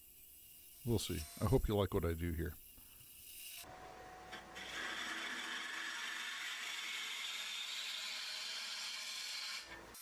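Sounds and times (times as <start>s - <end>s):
gouge cutting wood on lathe: 4.6s - 9.8s.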